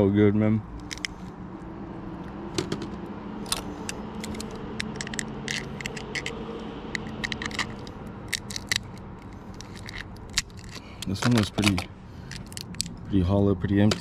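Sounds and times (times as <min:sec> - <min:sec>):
steady low hum: 0:00.0 - 0:14.0
crab shell snapping and cracking: 0:06.9 - 0:10.8.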